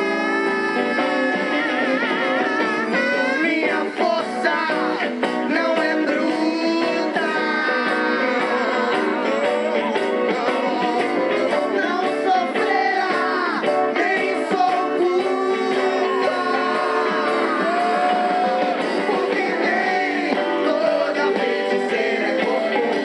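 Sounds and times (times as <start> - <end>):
electric guitar: 0.0 - 23.0
keyboards: 0.0 - 23.0
women singing together: 15.6 - 23.0.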